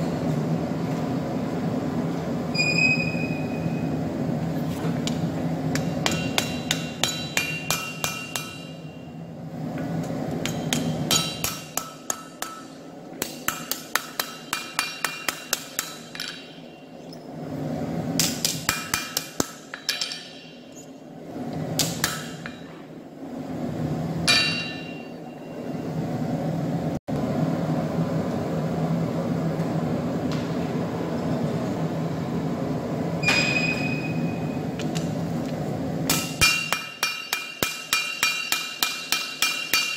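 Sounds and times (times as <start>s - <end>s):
steady low hum: 0.0s - 39.9s
hammer blows on an anvil: 5.7s - 9.2s, 10.4s - 16.9s, 24.2s - 25.5s, 36.1s - 39.9s.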